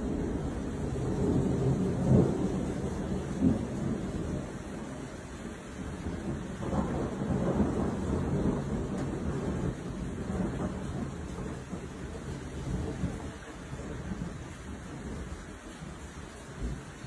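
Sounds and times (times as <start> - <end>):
rolling thunder: 0.0 - 17.0.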